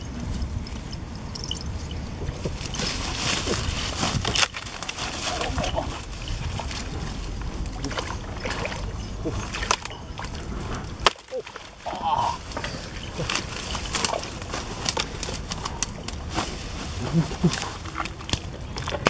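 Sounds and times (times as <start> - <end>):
grass and brush rustling: 0.0 - 19.0
sloshing in muddy water: 2.6 - 14.8.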